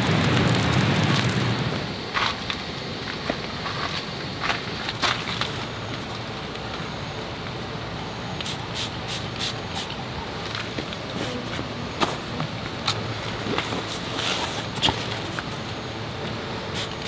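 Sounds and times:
steady rain on shelter: 0.0 - 17.0
spray bottle squirting: 8.4 - 10.0, 16.7 - 17.0.

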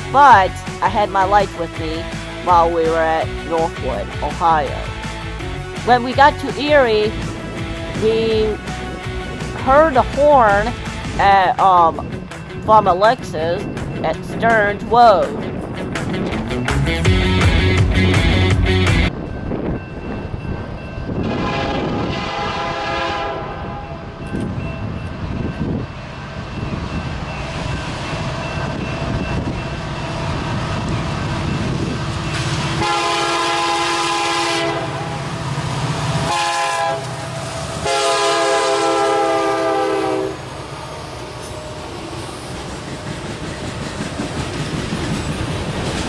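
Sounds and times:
locomotive engine rumble: 0.0 - 46.0
locomotive air horn blasts: 21.2 - 24.0, 32.8 - 35.3, 36.2 - 37.2, 37.8 - 40.5
train wheels rolling: 24.0 - 46.0.

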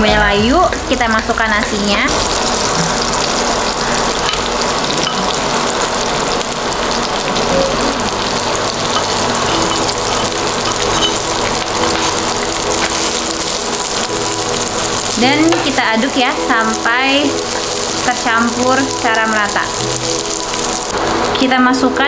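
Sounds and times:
onions sizzling in a pan: 1.5 - 21.9.

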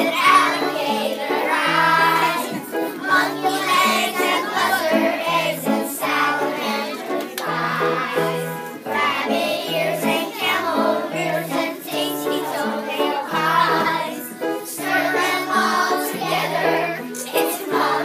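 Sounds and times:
children singing: 0.0 - 18.0
instrumental accompaniment: 0.0 - 18.0.

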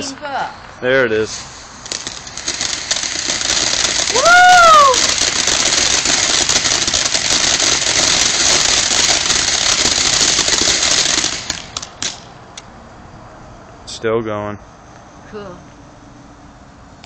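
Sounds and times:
firework hissing and crackling: 0.9 - 12.6
firework pops: 1.3 - 12.7.

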